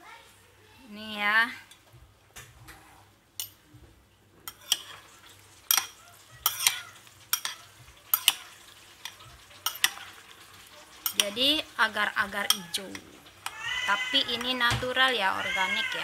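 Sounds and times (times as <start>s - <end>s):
spoon clinking against bowl: 3.4s - 3.6s, 4.5s - 5.1s, 5.7s - 10.2s, 11.0s - 11.4s, 12.4s - 13.6s.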